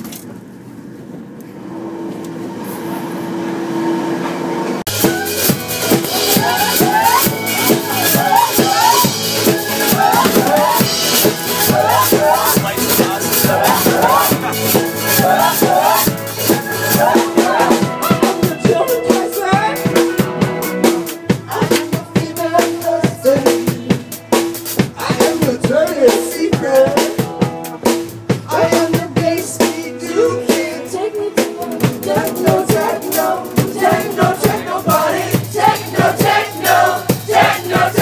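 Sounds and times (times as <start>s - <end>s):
drum kit beat: 4.9s - 38.0s
person singing: 20.9s - 24.1s.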